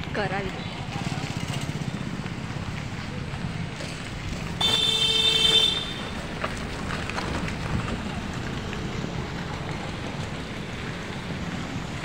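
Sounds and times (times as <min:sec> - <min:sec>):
street traffic rumble: 0:00.0 - 0:12.0
vehicle horn honking: 0:04.6 - 0:06.1.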